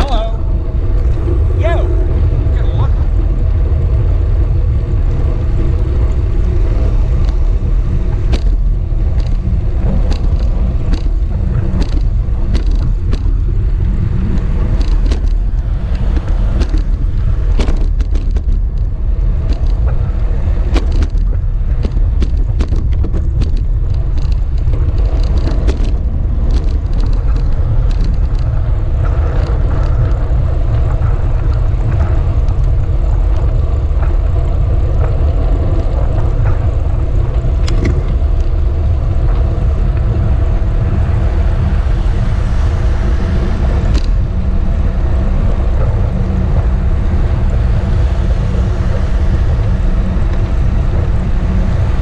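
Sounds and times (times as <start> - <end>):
road vibration rumble: 0.0 - 52.0
wind: 0.0 - 52.0
small clicks and rattles: 5.4 - 41.0.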